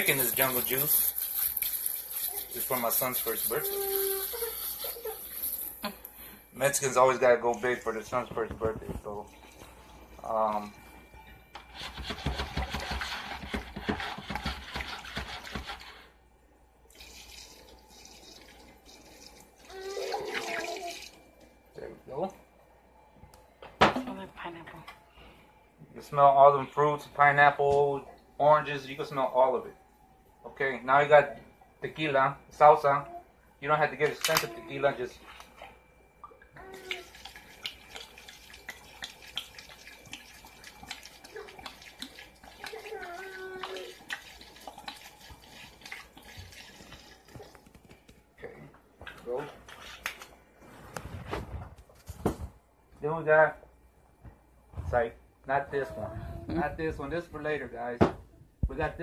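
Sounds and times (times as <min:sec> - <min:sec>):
drips and splashes: 0:35.3 - 0:48.1.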